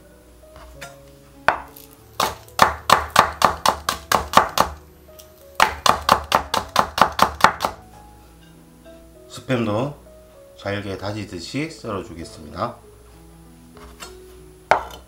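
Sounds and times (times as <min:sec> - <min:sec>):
knife chopping on cutting board: 0:00.6 - 0:04.8, 0:05.6 - 0:07.8, 0:14.7 - 0:15.0.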